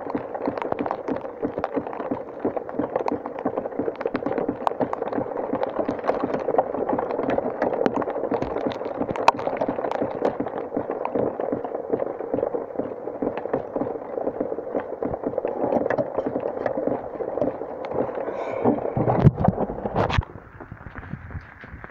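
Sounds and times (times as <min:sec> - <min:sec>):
steady rain: 0:00.0 - 0:21.9.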